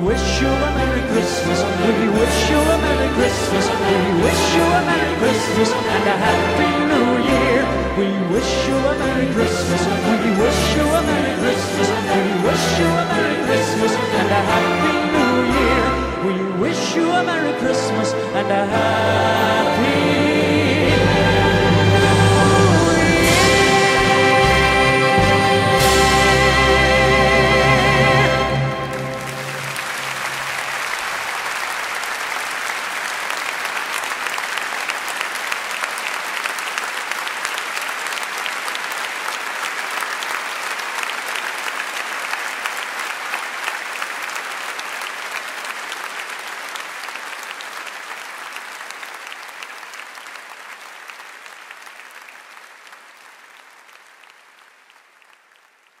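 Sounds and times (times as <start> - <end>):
audience applauding: 20.9 - 56.0.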